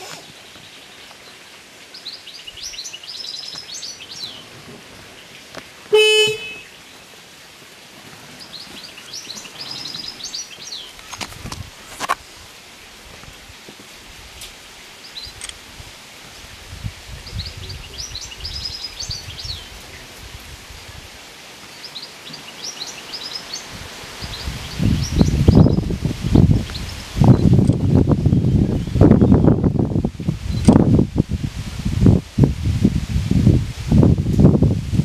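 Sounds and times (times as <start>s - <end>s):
outdoor ambience: 0.0s - 35.0s
songbird twittering: 0.2s - 4.5s, 8.4s - 11.1s, 17.2s - 19.8s, 21.7s - 27.6s.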